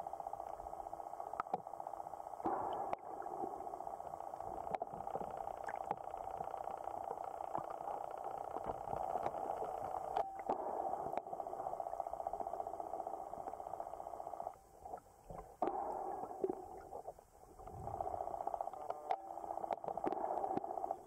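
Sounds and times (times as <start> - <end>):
muffled underwater buzzing hum: 0.0 - 21.0
underwater clicks: 2.4 - 3.3, 4.0 - 11.4, 17.6 - 21.0.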